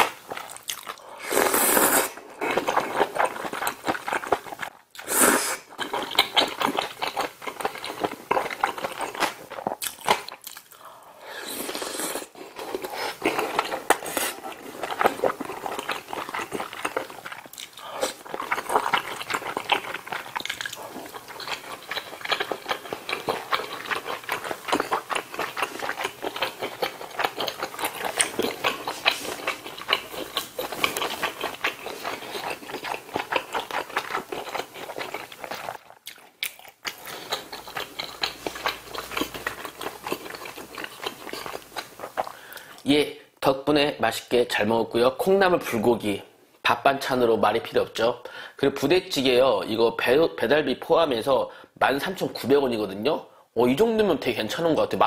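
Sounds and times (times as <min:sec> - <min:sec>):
slurping: 0:00.0 - 0:10.2, 0:11.2 - 0:42.8
wet chewing: 0:00.0 - 0:42.8.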